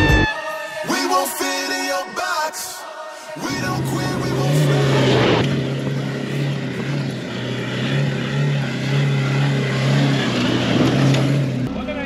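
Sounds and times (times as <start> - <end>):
vehicle engine droning: 3.4 - 12.0.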